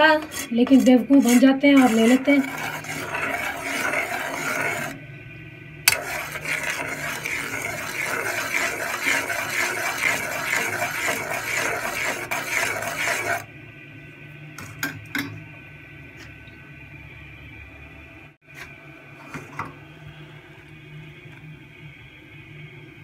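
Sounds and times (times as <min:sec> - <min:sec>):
metal spoon scraping saucepan: 0:00.0 - 0:05.0, 0:05.9 - 0:13.4.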